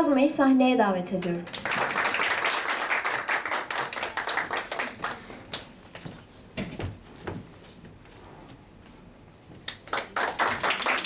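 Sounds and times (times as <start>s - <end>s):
audience applauding: 1.5s - 5.4s, 9.7s - 11.0s
footsteps on wooden stage: 6.0s - 9.0s.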